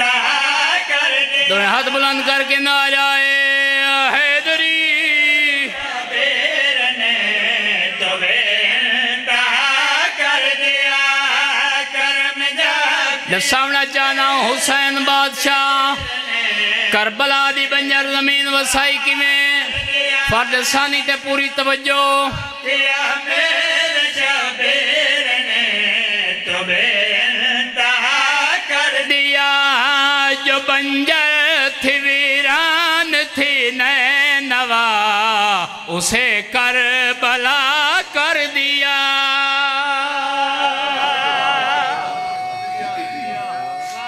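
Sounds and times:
men chanting into microphones: 0:00.0 - 0:44.0
men chanting together: 0:22.3 - 0:29.1, 0:40.4 - 0:44.0.

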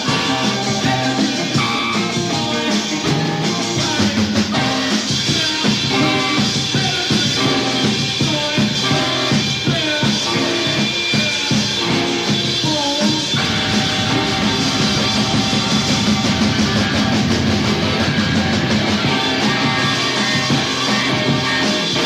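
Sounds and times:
rock band playing: 0:00.0 - 0:22.0.

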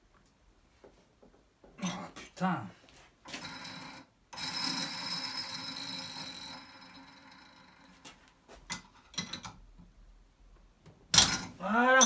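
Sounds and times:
bearing spinning with grating whir: 0:03.4 - 0:07.9.

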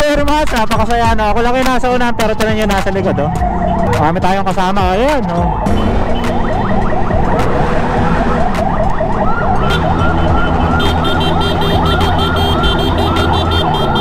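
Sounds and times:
road and wind noise: 0:00.0 - 0:14.0
electronic siren yelping: 0:02.0 - 0:04.0, 0:04.9 - 0:14.0
motorcycle engine running: 0:09.3 - 0:14.0.

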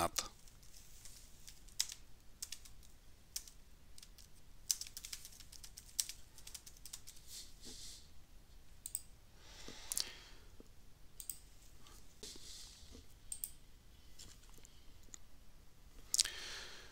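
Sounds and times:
keyboard typing: 0:01.4 - 0:07.2.

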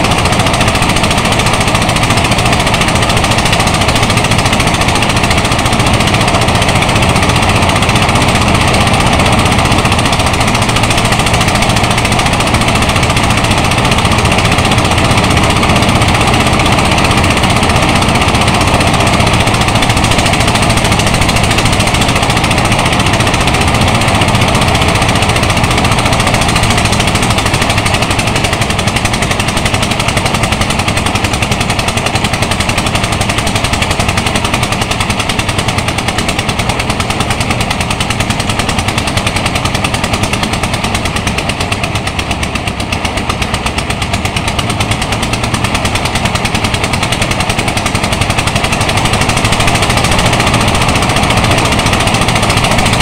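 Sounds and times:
rice thresher clattering: 0:00.0 - 0:53.0.

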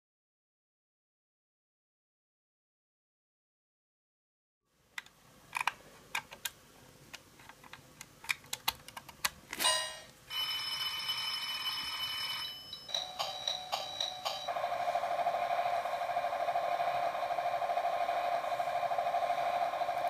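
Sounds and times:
steady electronic ringing tone: 0:09.7 - 0:20.0.

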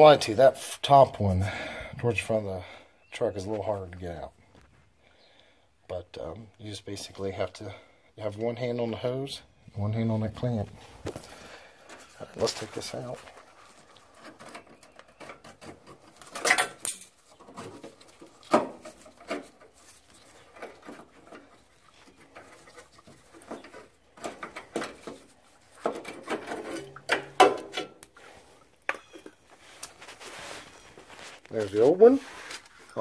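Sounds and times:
clicks and scrapes of fuel filter: 0:11.0 - 0:30.3.

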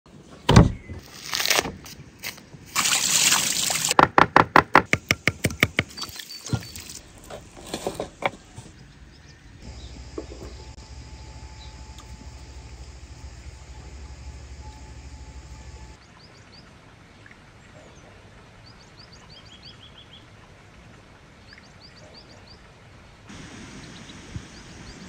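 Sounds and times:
low hum: 0:07.0 - 0:16.0.

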